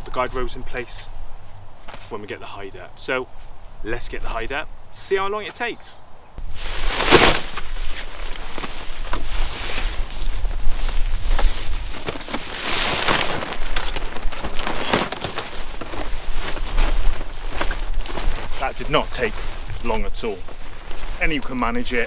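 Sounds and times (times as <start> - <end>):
wind buffeting microphone: 6.4 - 12.3
fabric hide rustling: 6.4 - 22.0.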